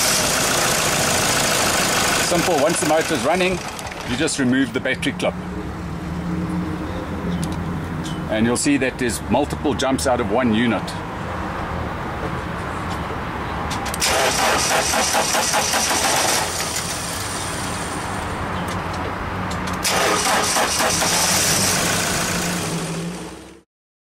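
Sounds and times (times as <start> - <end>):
engine starter cranking: 0.0 - 4.3, 13.9 - 17.5, 19.8 - 22.9
diesel engine running: 0.0 - 5.6, 13.8 - 19.0, 19.6 - 23.6.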